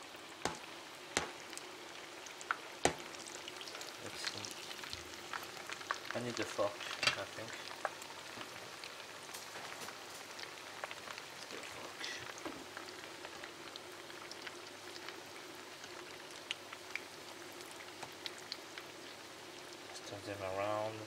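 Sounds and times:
oil sizzling and bubbling: 0:00.0 - 0:21.0
crackles and pops in oil: 0:00.4 - 0:01.6, 0:02.2 - 0:06.2, 0:06.8 - 0:08.5.

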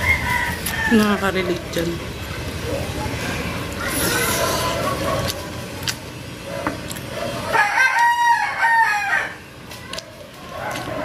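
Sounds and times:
rooster crowing: 0:00.0 - 0:01.2, 0:07.5 - 0:09.4.

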